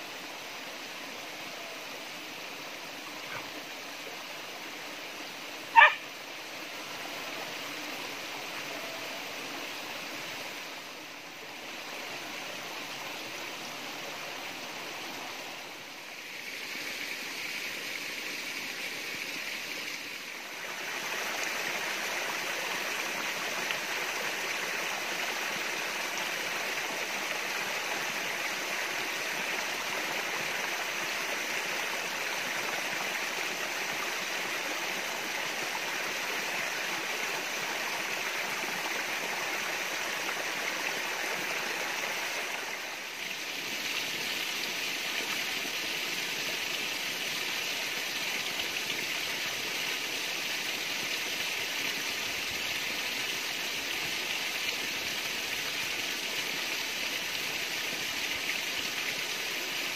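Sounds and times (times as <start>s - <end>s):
water splashing from spouts into pool: 16.2s - 59.9s.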